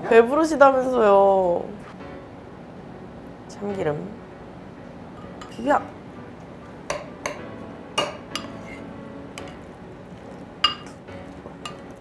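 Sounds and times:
metal spoon clinking on ceramic bowl: 8.0s - 8.6s, 10.6s - 11.0s, 11.6s - 11.8s.

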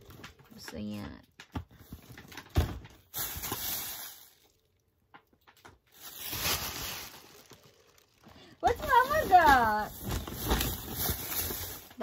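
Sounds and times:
cardboard rustling and scraping: 8.6s - 12.0s.

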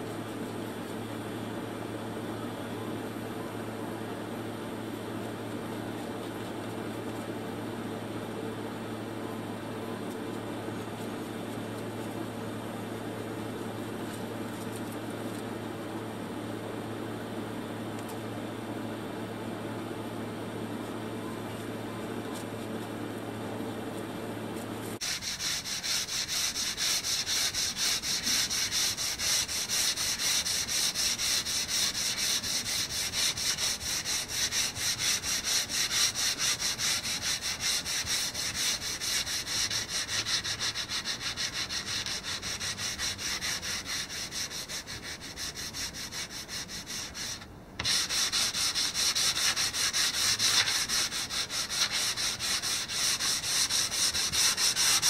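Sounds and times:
steady hum: 0.0s - 55.0s
sandpaper rubbing: 25.0s - 55.0s.

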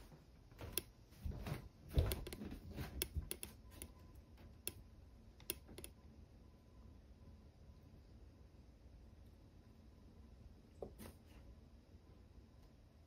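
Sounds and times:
light clicks and taps: 1.9s - 4.8s.

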